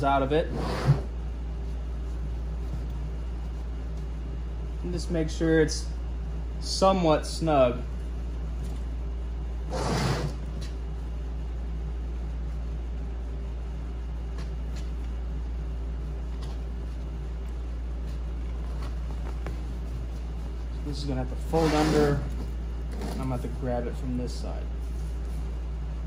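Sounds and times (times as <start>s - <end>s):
low background hum: 0.0s - 26.0s
rustling scrape of seat frame: 9.7s - 10.7s, 21.5s - 23.3s.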